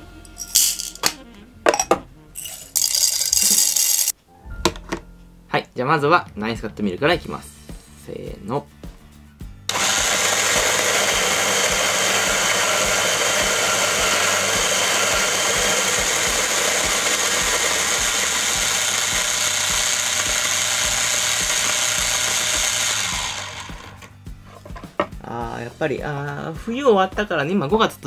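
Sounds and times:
electric coffee grinder grinding: 9.7 - 24.1.

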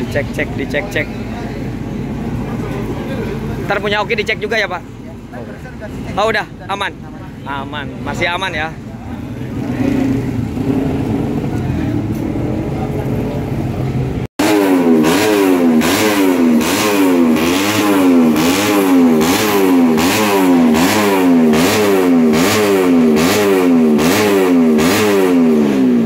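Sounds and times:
motorcycle engine revving: 8.0 - 26.0.

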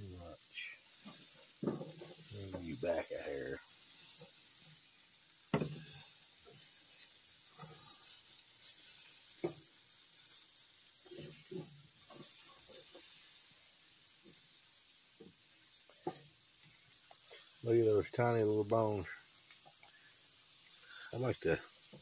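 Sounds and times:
meat sizzling on a grill: 0.0 - 22.0.

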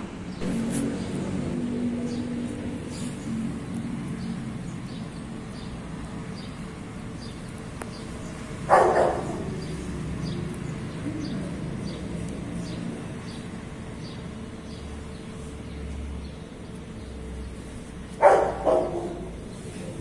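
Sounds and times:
low traffic hum: 0.0 - 20.0
dog barking: 8.7 - 9.6, 18.2 - 19.3.

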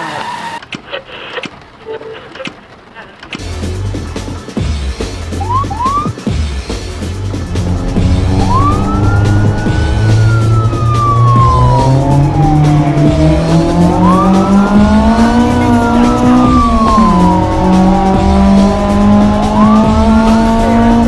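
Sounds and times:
car engine accelerating: 6.8 - 21.0
police siren wailing: 7.3 - 21.0.

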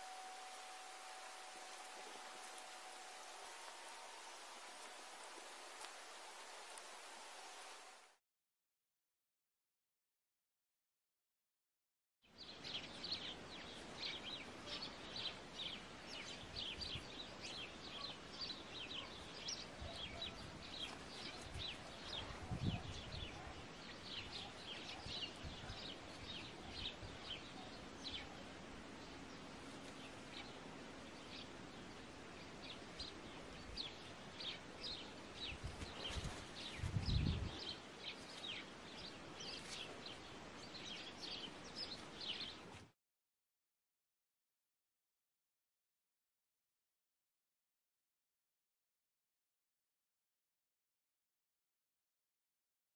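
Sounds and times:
small birds chirping: 12.3 - 42.9.

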